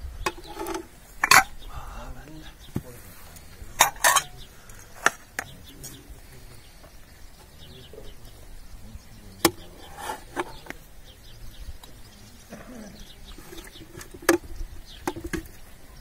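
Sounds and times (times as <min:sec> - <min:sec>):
china plates clinking: 0:00.3 - 0:01.6, 0:03.7 - 0:06.0.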